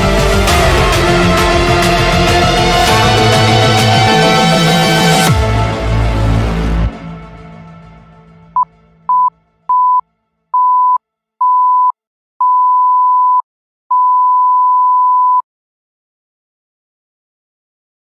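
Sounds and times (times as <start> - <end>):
music: 0.0 - 10.5
electronic beep tone: 8.6 - 10.0, 10.6 - 15.4.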